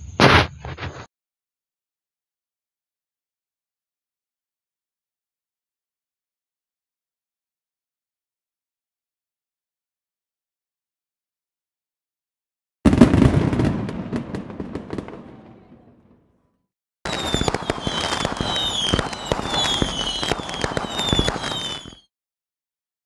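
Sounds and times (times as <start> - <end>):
firework bang: 0.2 - 0.9, 12.9 - 16.2, 17.1 - 22.1
falling firework whistles: 17.1 - 22.1
firework crackling: 17.1 - 22.1.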